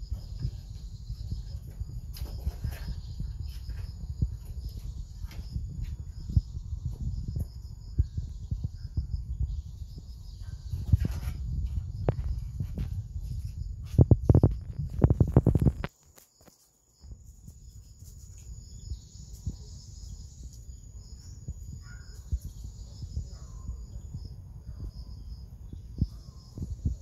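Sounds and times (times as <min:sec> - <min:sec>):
knocks and rustling: 0:00.0 - 0:06.0, 0:10.6 - 0:16.0
microphone noise rumble: 0:00.0 - 0:15.9, 0:18.5 - 0:27.0
insects chirping: 0:00.0 - 0:27.0.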